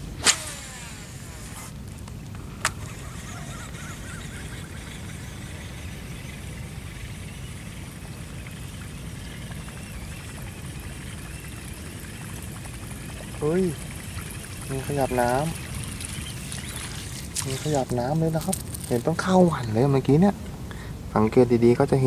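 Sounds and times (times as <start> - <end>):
low outdoor rumble: 0.0 - 22.0
sharp click: 0.2 - 0.8
faint chirping: 2.9 - 19.4.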